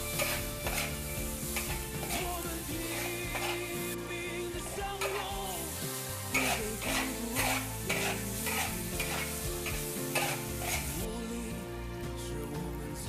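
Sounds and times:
metal spatula scraping wok: 0.0 - 4.0, 4.6 - 11.1
food sizzling in wok: 0.0 - 12.7.

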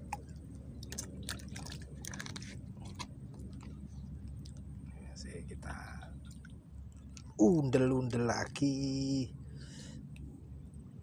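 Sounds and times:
water clicking among reeds: 0.0 - 4.6.

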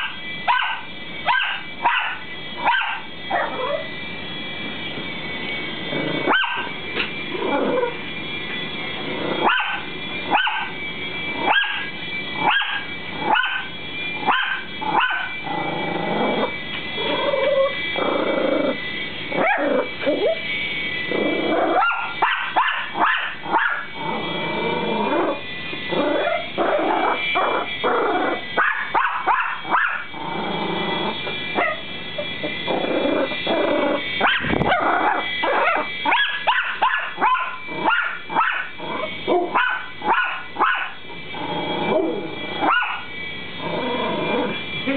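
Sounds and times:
dogs barking: 0.0 - 3.9, 6.2 - 6.8, 9.4 - 10.8, 11.4 - 15.4, 19.4 - 20.4, 21.6 - 24.0, 26.0 - 30.2, 31.6 - 31.9, 32.5 - 41.1, 42.6 - 43.1
toy helicopter rotor whine: 0.0 - 44.9.

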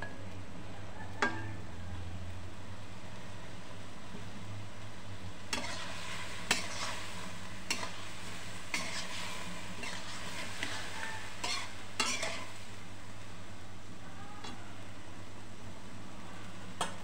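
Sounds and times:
eggplant sizzling in oil: 1.4 - 17.0
spatula scraping and knocking pan: 5.5 - 8.1, 8.7 - 12.5.

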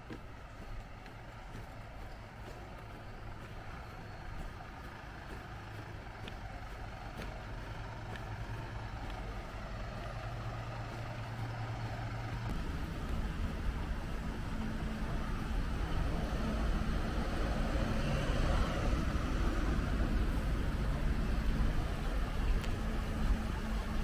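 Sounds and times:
quiet street ambience: 0.0 - 24.0
vehicle engine hum: 0.0 - 24.0.

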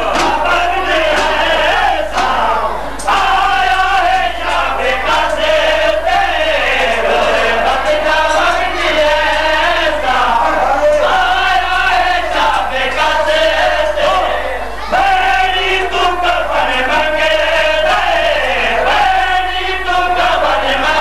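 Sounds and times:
chest-beating slaps: 0.0 - 3.4
men chanting a lament: 0.0 - 21.0
reciter over loudspeakers: 0.0 - 21.0.

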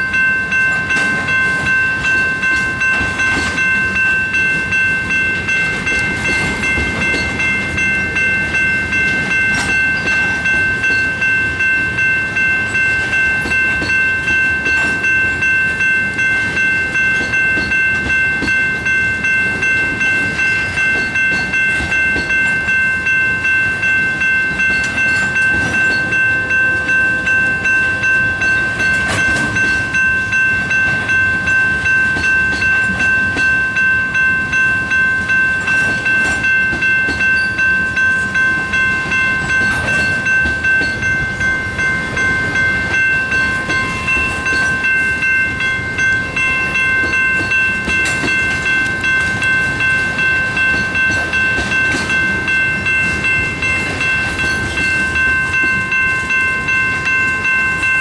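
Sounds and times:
train wheels clattering: 0.0 - 12.0, 24.3 - 27.8, 28.4 - 34.0, 35.2 - 58.0
railroad crossing bells ringing: 0.0 - 58.0.

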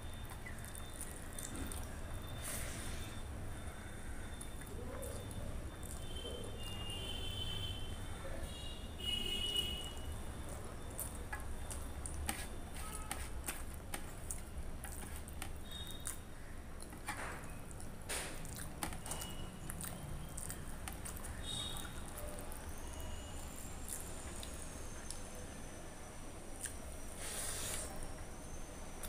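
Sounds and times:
wet squishing of food: 0.0 - 7.5, 9.9 - 25.3.

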